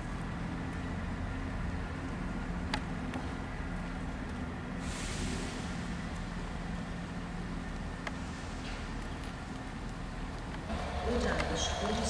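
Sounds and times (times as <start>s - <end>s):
diesel locomotive engine throbbing: 0.0s - 12.0s
hiss: 4.8s - 6.0s.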